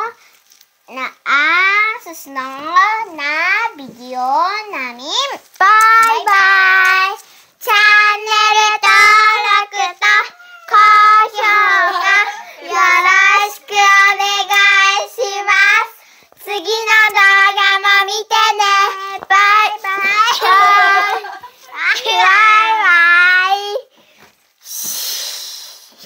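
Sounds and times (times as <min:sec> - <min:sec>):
children singing: 0:07.8 - 0:15.9, 0:16.5 - 0:23.6.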